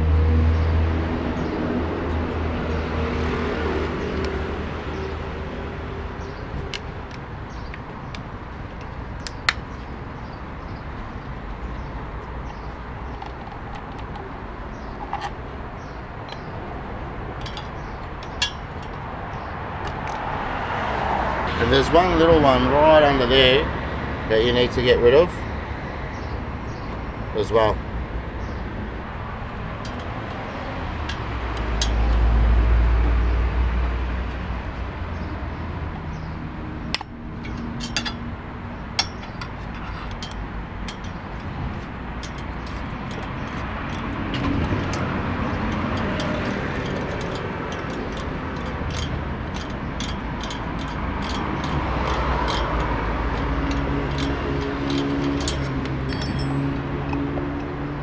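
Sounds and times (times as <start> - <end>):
passing vehicle rumble: 0.0 - 8.6, 9.6 - 58.0
street traffic noise: 0.0 - 58.0
allen key clicking on screws: 17.4 - 19.1, 36.9 - 38.2, 39.0 - 57.8
engine droning: 36.1 - 58.0.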